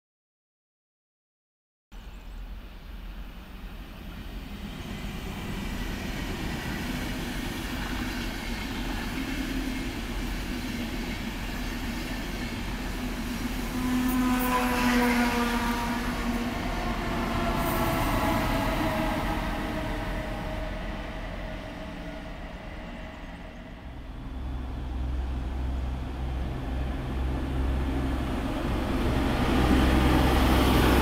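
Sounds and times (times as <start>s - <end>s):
train rumbling on rails: 2.2s - 31.0s
electric locomotive whine: 2.5s - 31.0s.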